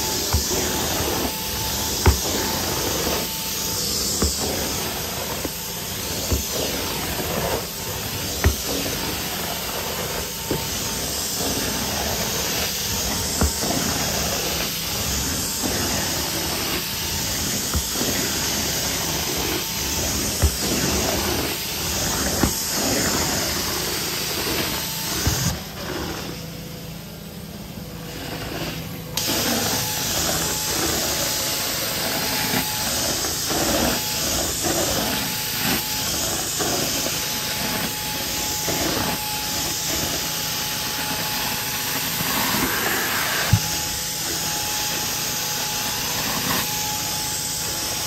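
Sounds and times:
spray hiss: 0.0s - 25.6s
carpet extraction vacuum running: 0.0s - 48.0s.

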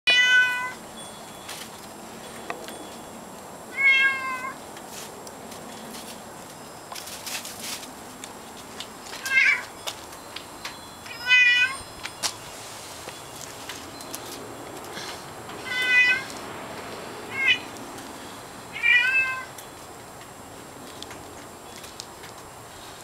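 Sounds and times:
cat meowing: 0.1s - 0.8s, 3.7s - 4.6s, 15.6s - 16.3s, 17.3s - 17.7s, 18.7s - 19.5s.

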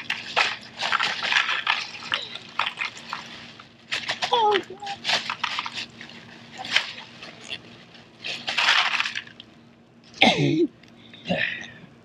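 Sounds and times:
ice cubes clattering into water: 8.4s - 9.4s.

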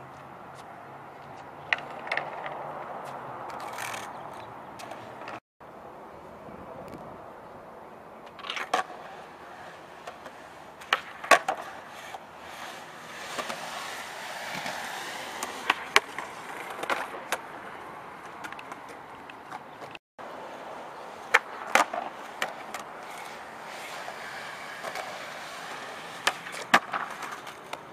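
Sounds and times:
skateboard wheels rolling on asphalt: 0.0s - 5.4s, 8.1s - 27.9s
skateboard wooden clacks: 1.3s - 2.7s, 8.3s - 17.5s, 21.3s - 27.9s.

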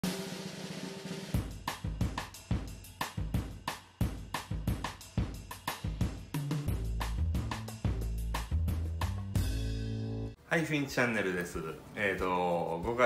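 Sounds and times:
drum kit beat: 0.0s - 10.3s.

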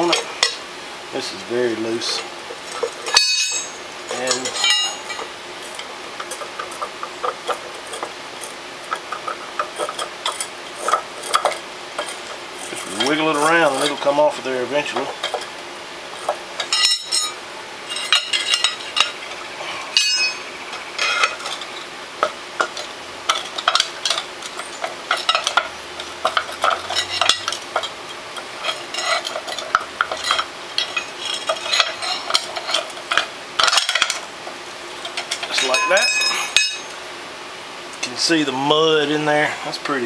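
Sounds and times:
pry bar scraping metal: 2.0s - 34.2s
sharp metal clanks: 2.8s - 5.3s, 16.6s - 19.2s, 19.9s - 21.7s, 22.6s - 28.0s, 35.1s - 37.0s.

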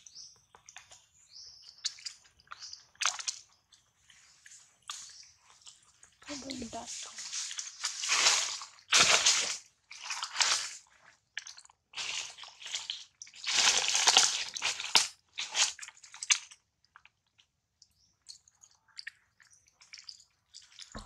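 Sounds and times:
dry leaves crunching and rustling: 6.3s - 10.7s, 13.4s - 15.6s.

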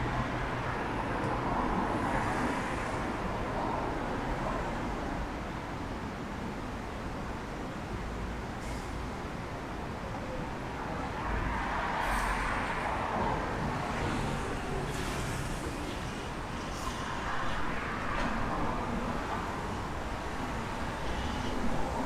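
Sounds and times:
city traffic noise: 0.0s - 22.0s
vehicles passing by: 8.8s - 22.0s.

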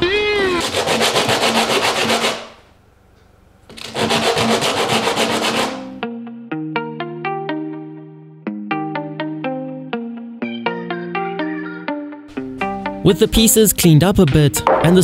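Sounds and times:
wood block rasping on sandpaper: 0.6s - 2.6s, 3.7s - 5.9s
plucked music notes: 5.9s - 15.0s.

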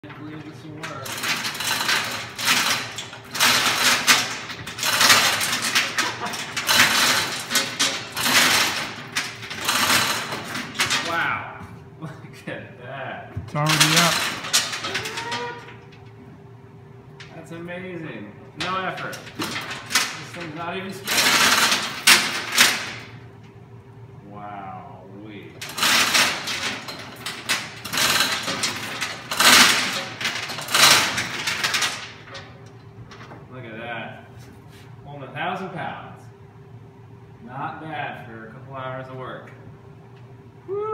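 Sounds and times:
chain hoist chain rattling: 0.1s - 11.2s, 13.6s - 15.9s, 18.6s - 23.1s, 25.6s - 33.2s.

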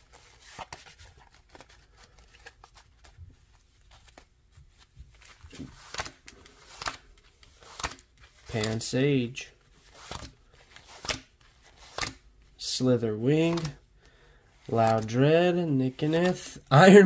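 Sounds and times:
trading cards clicking and rustling: 0.1s - 4.3s, 5.1s - 9.1s, 9.9s - 12.3s, 13.3s - 13.8s, 14.6s - 15.2s.

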